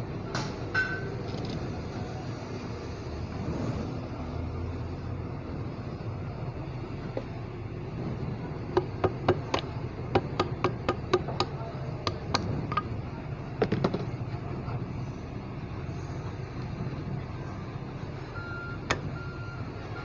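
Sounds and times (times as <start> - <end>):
hammer tapping on metal: 8.8 - 12.9.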